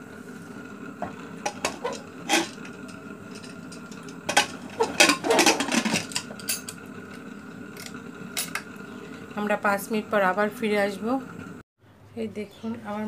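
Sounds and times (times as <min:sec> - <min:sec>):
metal clanking and scraping: 0:01.4 - 0:06.8
metal lid clinking: 0:01.5 - 0:06.8.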